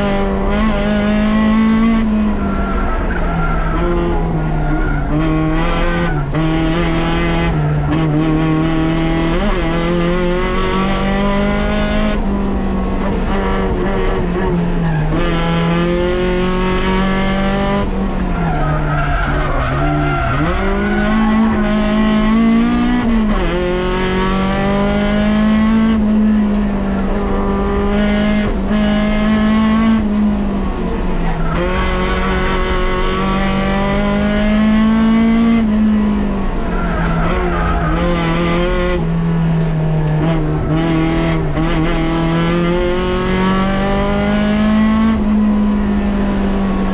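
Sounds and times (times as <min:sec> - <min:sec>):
car engine revving hard: 0:00.0 - 0:46.9.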